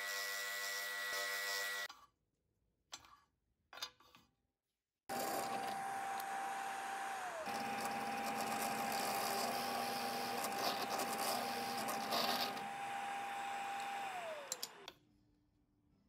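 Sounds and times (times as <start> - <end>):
drill bit boring into wood: 5.1 - 14.9
drill press motor whining: 5.1 - 14.9
motor spinning down: 5.1 - 14.9
clicks: 13.8 - 15.0.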